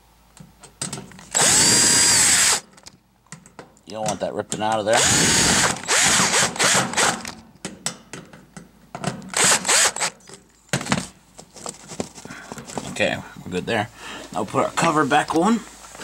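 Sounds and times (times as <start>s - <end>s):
cordless drill driving screws: 1.3s - 2.7s, 4.9s - 7.4s, 9.3s - 10.2s.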